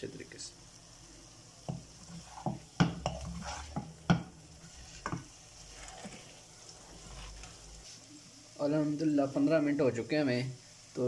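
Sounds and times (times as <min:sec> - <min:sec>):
spatula knocking against pan: 0:01.7 - 0:04.3
spatula scraping thick halwa: 0:02.0 - 0:04.0, 0:04.6 - 0:08.0.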